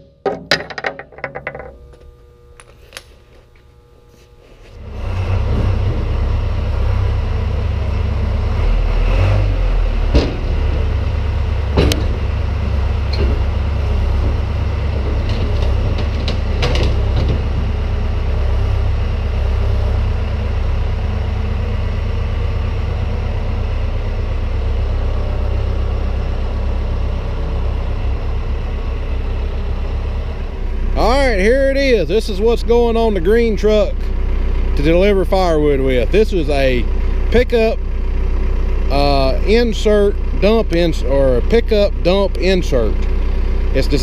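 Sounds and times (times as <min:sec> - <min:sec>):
sharp knocks: 0:00.0 - 0:01.8
forklift engine running: 0:00.0 - 0:44.0.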